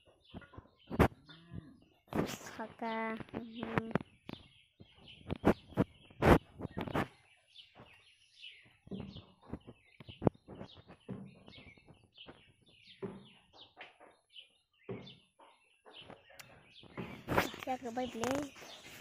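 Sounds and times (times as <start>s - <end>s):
small birds chirping: 0.0s - 19.0s
rustling leaves and clicking: 16.0s - 19.0s.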